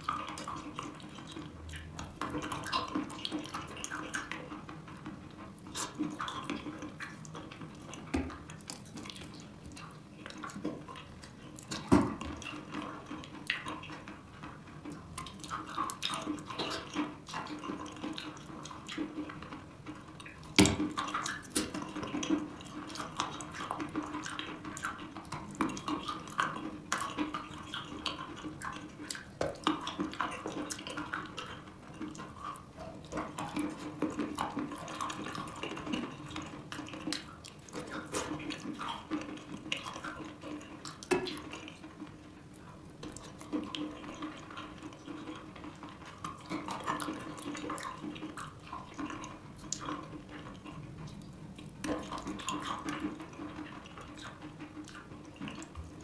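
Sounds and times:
chalk being chewed: 5.6 - 11.9, 20.2 - 56.0.

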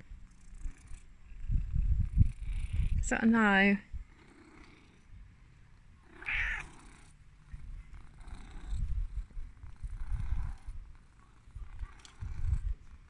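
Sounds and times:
cat meowing: 6.2 - 6.8.

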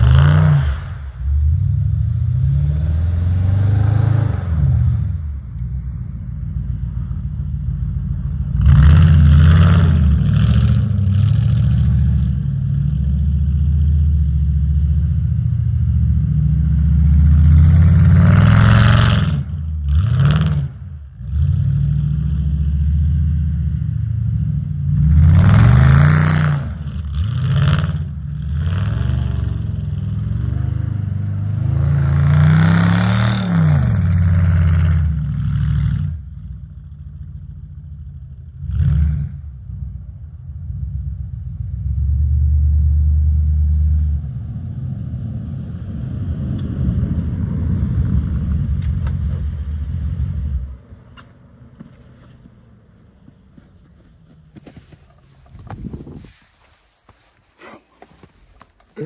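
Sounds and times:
car engine revving: 0.0 - 36.3.

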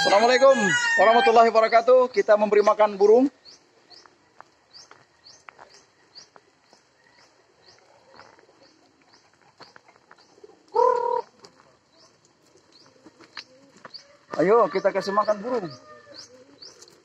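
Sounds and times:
pigeons cooing: 7.0 - 17.0.

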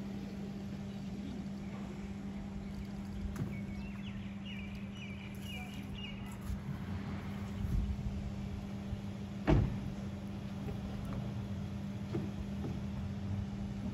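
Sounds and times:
birds chirping: 0.0 - 6.6
steady low hum: 0.0 - 13.9
car door shutting: 9.4 - 10.0.

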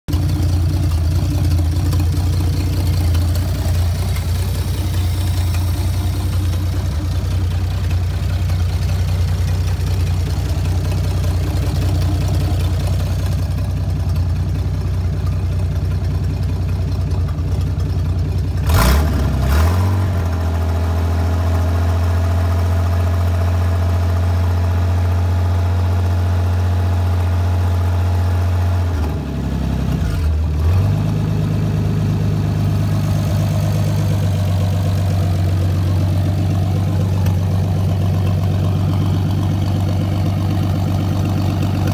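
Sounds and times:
engine idling: 0.0 - 41.9
engine revving blips: 18.6 - 20.2.

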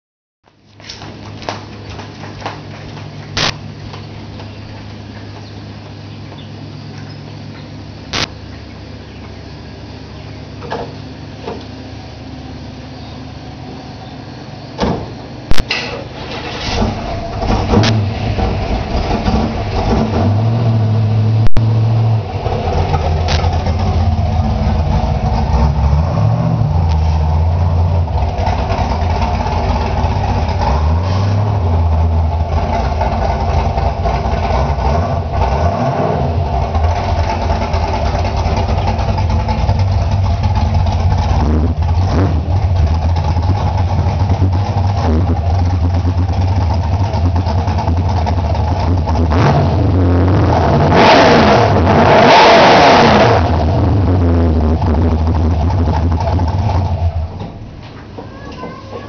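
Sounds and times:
car engine running and revving: 15.5 - 57.8.

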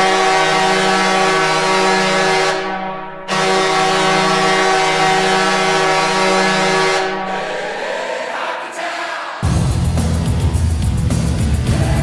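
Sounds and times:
goal horn blasts: 0.0 - 7.3.

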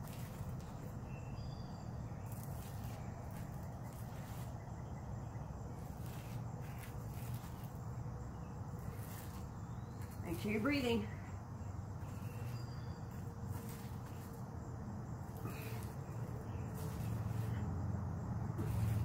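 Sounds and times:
soft hissing rustles: 2.2 - 4.9, 5.7 - 11.0, 11.9 - 19.0.

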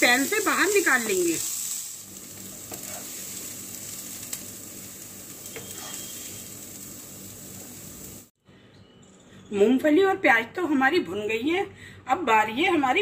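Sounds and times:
onions sizzling in butter: 0.0 - 8.3
spatula stirring in pan: 5.3 - 6.4.

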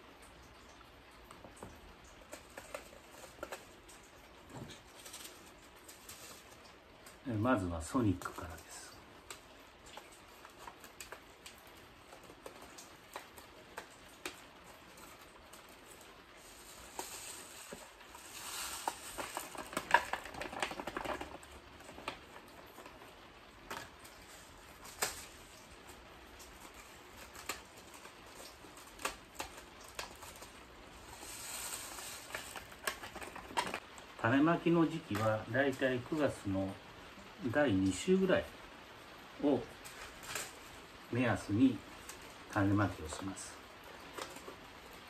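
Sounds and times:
seeds pattering into plastic case: 1.3 - 36.8.

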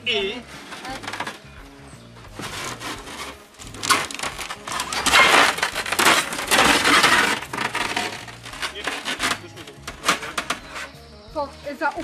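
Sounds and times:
plastic sheet crackling: 2.4 - 10.8.

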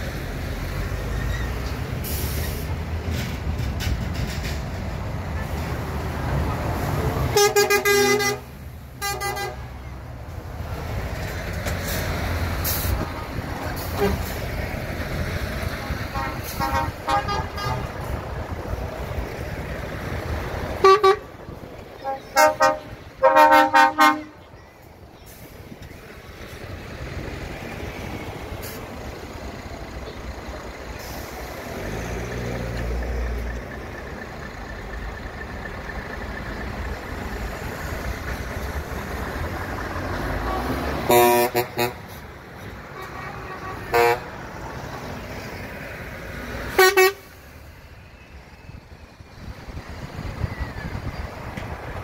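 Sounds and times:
diesel lorry engines running: 0.0 - 52.0
truck air horn blasts: 7.3 - 9.8, 13.8 - 14.4, 16.0 - 18.0, 20.8 - 21.3, 22.0 - 24.5, 40.5 - 42.2, 42.9 - 44.4, 46.7 - 47.4.

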